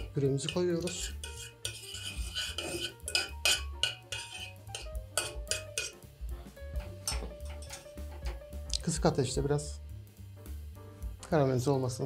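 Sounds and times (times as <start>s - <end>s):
spoon scraping a pan: 0.0s - 6.1s, 6.8s - 8.4s.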